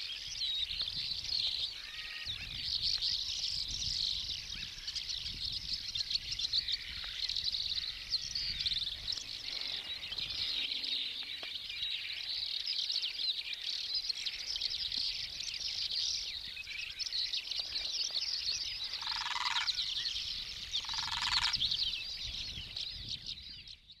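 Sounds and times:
chorus of bird chirping: 0:00.0 - 0:24.0
short loud bird calls: 0:01.7 - 0:02.6, 0:06.6 - 0:12.6, 0:17.7 - 0:21.6.

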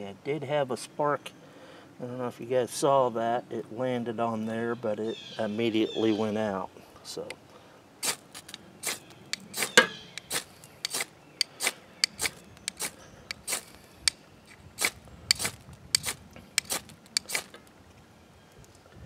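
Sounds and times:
ferro rod scraped with striker: 0:08.0 - 0:17.6.

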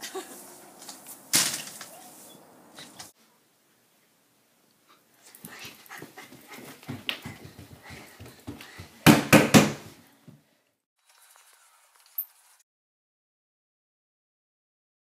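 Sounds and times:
thuds on carpeted stairs: 0:06.0 - 0:10.4.

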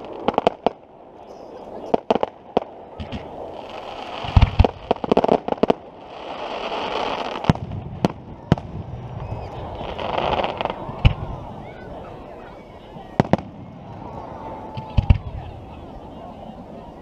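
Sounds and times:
crackling pops: 0:00.0 - 0:00.8, 0:01.9 - 0:11.3
rushing firework hiss: 0:01.4 - 0:12.2
firework bangs: 0:01.8 - 0:12.3, 0:13.0 - 0:15.6.

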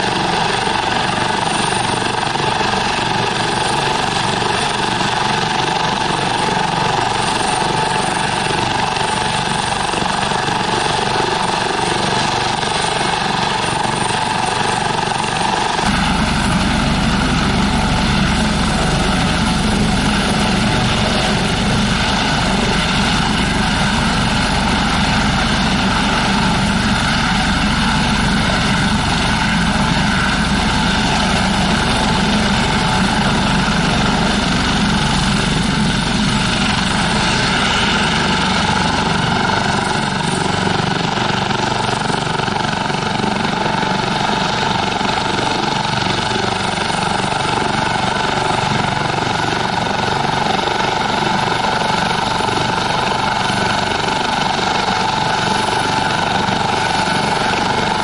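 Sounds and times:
helicopter rotor noise: 0:00.0 - 0:58.0
helicopter turbine whine: 0:00.0 - 0:58.0.

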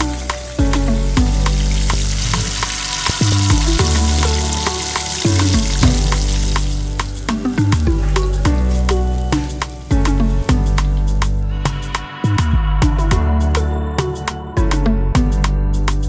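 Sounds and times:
chicken sizzling in hot oil: 0:00.0 - 0:11.9
background music with bass line: 0:00.0 - 0:16.0.

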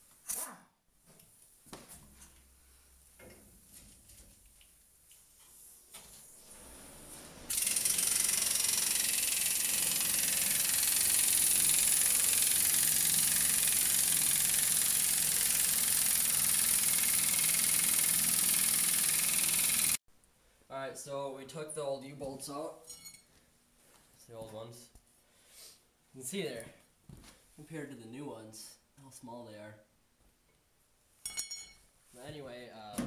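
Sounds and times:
pneumatic impact wrench running: 0:06.6 - 0:20.0.

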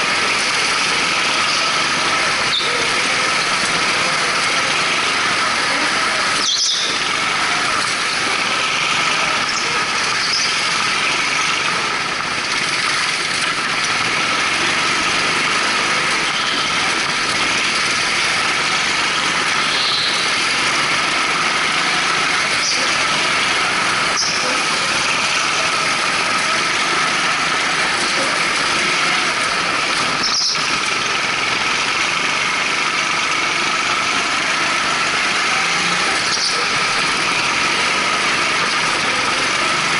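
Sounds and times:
go-kart engines at high revs: 0:00.0 - 0:39.9
tyre squeals: 0:05.8 - 0:07.2.

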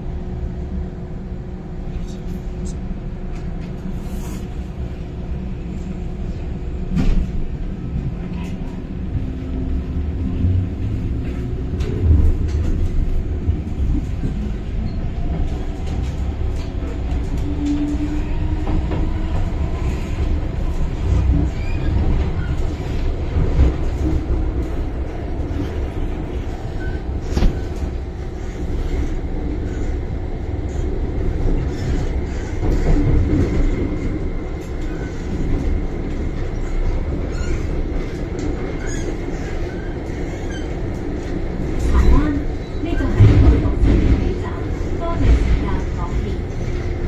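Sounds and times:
train wheels rumbling on rail: 0:00.0 - 0:47.0.

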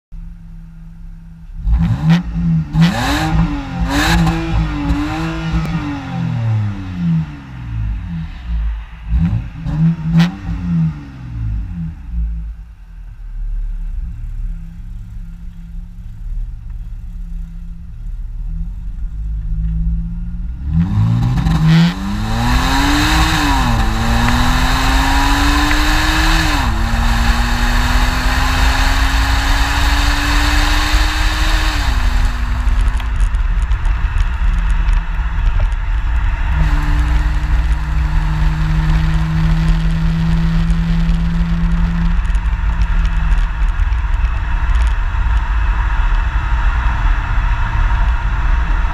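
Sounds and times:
wind and road noise: 0:00.2 - 0:48.9
car engine revving: 0:01.2 - 0:48.9
car accelerating through gears: 0:01.6 - 0:08.2, 0:20.6 - 0:33.3.

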